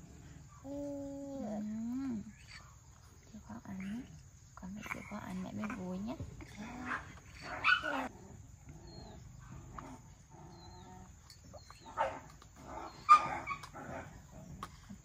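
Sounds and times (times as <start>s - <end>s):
dog barking: 6.8s - 8.1s, 11.9s - 14.0s.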